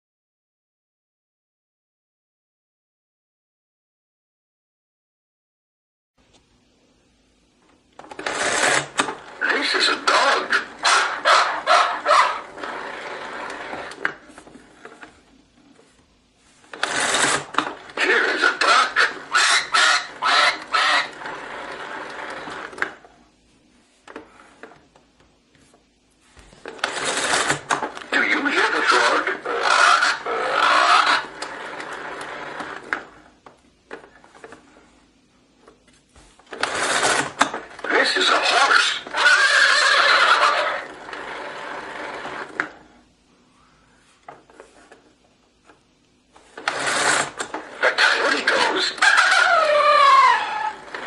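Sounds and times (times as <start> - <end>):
lever ratcheting whir: 8.0 - 9.3, 16.7 - 23.0, 26.7 - 33.2, 36.5 - 37.9, 46.5 - 51.0
talking toy speaker playback: 8.2 - 14.3, 16.7 - 23.0, 26.7 - 33.3, 36.5 - 42.8, 46.6 - 51.0.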